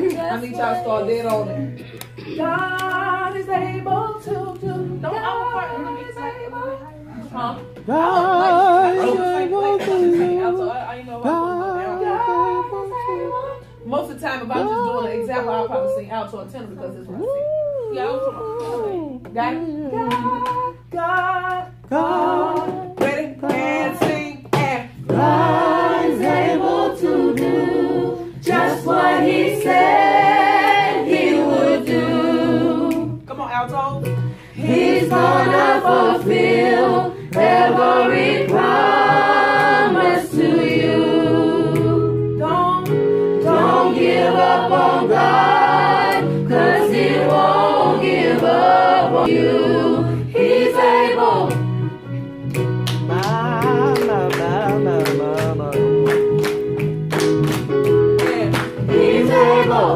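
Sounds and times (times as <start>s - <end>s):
choir singing a cappella: 0.0s - 13.7s, 21.9s - 33.2s, 34.4s - 52.0s, 58.7s - 59.9s.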